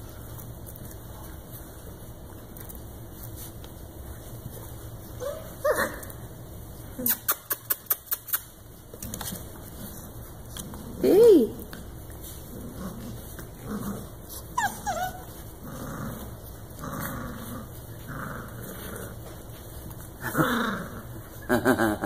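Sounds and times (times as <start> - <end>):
puppies scuffling: 0.0 - 21.5
puppies growling and whining: 2.6 - 22.0
puppy yip: 14.6 - 15.3.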